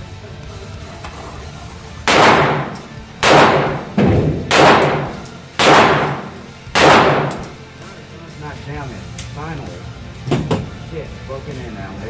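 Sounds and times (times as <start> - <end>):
pistol shots echoing indoors: 2.0 - 7.6.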